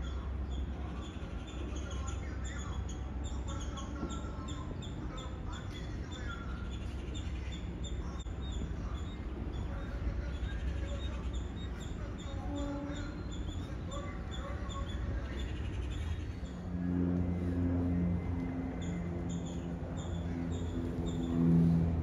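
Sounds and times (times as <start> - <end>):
small birds chirping: 0.0 - 22.0
low rumble: 15.0 - 22.0.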